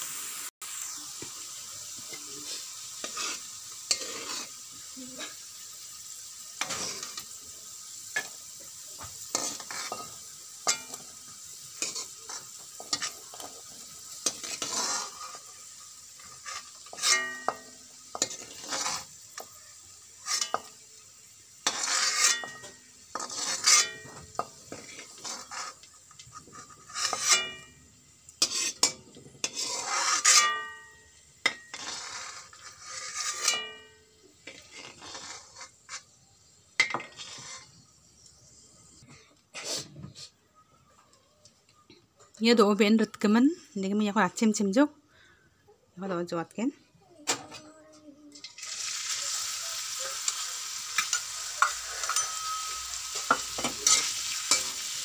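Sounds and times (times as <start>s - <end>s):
vegetables sizzling in hot oil: 0.0s - 40.3s, 48.3s - 55.0s
ladle scraping with metallic ring: 51.1s - 54.7s.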